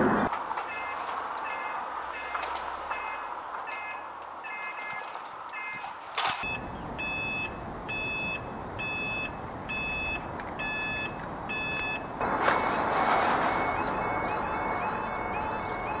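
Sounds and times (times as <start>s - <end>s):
level crossing alarm beeping: 6.4s - 16.0s.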